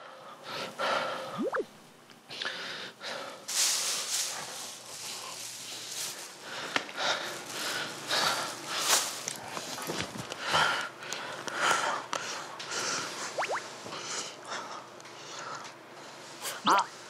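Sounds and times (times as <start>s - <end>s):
man breathing hard: 0.0s - 1.4s, 2.3s - 3.5s, 6.3s - 9.0s, 10.3s - 13.2s
short rising whistle-like tone: 1.4s - 1.7s.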